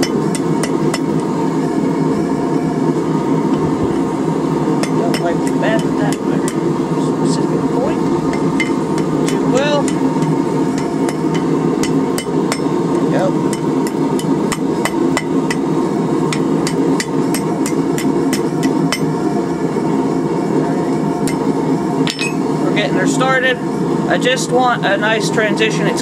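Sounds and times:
hammer striking metal on anvil: 0:00.0 - 0:01.2, 0:04.8 - 0:06.6, 0:08.3 - 0:12.8, 0:13.5 - 0:15.6, 0:16.3 - 0:19.1, 0:22.1 - 0:22.5.

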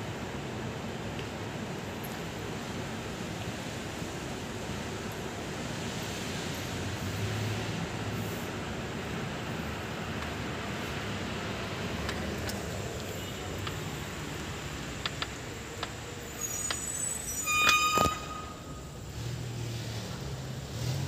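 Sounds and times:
high-pitched horn toot: 0:17.3 - 0:18.9.

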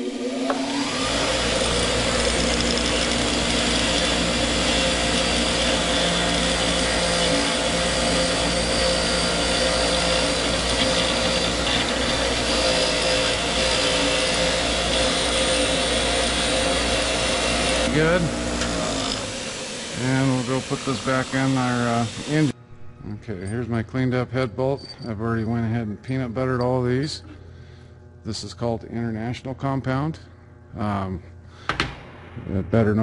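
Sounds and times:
bench grinder motor hum: 0:00.0 - 0:22.9.

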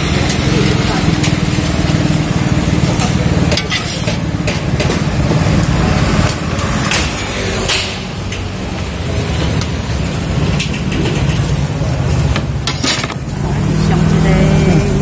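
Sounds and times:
metal spatula scraping griddle: 0:00.0 - 0:04.8.

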